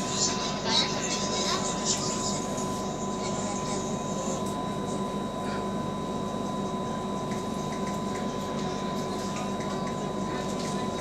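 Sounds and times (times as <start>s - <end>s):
train car rumble and hiss: 0.0s - 5.3s.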